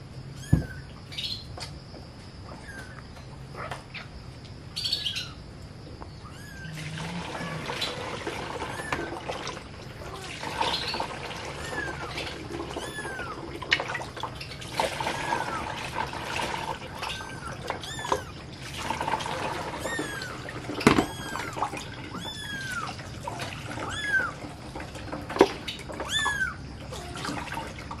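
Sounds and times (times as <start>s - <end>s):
kitten mewing: 6.3s - 7.7s, 19.8s - 23.0s.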